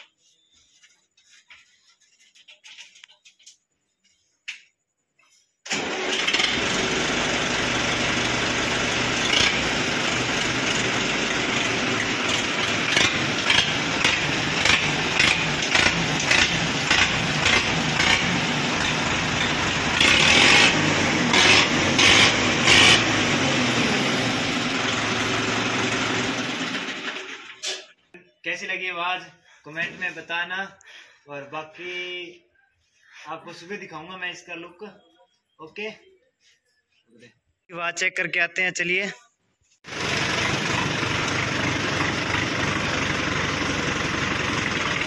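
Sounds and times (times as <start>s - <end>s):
tractor diesel engine revving: 5.7s - 27.6s, 39.8s - 45.0s.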